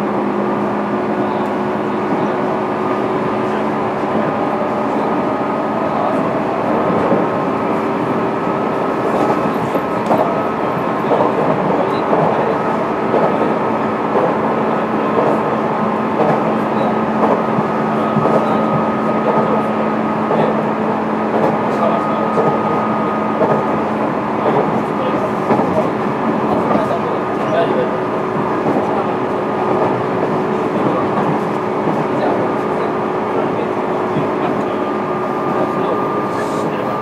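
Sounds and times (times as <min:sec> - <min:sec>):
train wheels droning on rail: 0:00.0 - 0:37.0
light rail clicks: 0:09.2 - 0:10.4, 0:16.2 - 0:16.5, 0:17.2 - 0:19.5, 0:21.3 - 0:21.6.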